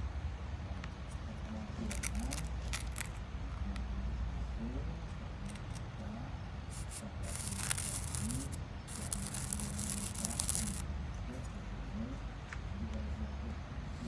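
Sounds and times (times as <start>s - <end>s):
spoon rubbing sand on paper: 6.7s - 10.8s.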